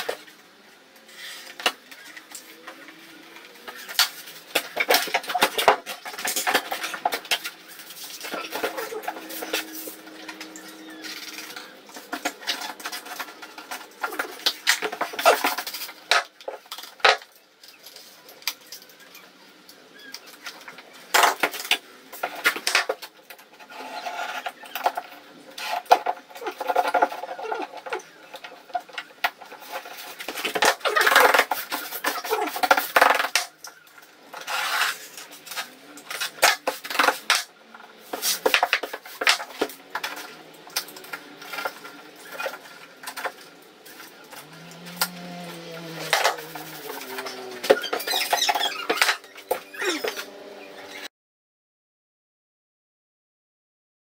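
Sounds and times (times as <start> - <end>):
hand tool scraping wall: 4.8 - 16.0, 34.4 - 37.4.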